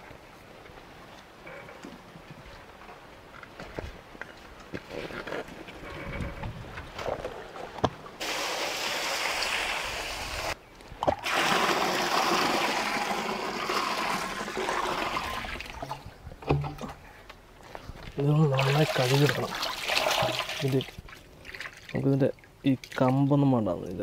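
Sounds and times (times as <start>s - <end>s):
water splashing onto grapes: 18.4s - 23.3s.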